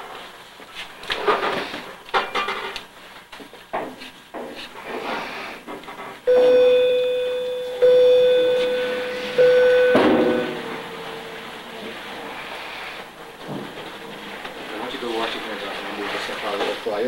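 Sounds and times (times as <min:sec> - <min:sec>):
chime-like tone: 0:06.3 - 0:10.7.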